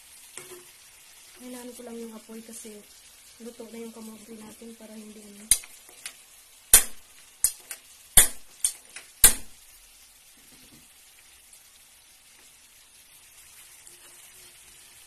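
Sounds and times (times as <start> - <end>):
frying sizzle: 0.0 - 15.0
metal spatula scraping frying pan: 0.3 - 0.7, 13.8 - 15.0.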